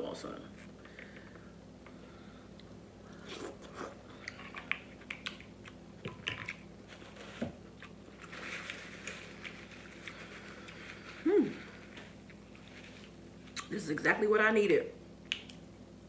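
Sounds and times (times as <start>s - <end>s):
paper napkin rustling: 8.2s - 13.2s
lip smacks and clicks: 15.2s - 15.6s.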